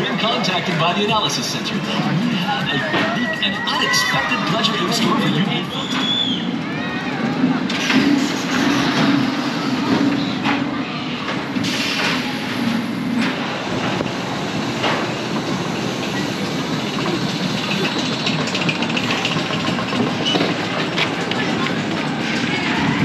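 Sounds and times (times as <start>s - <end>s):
roller coaster car rumbling on track: 0.0s - 23.0s
chain lift clatter: 16.9s - 22.6s.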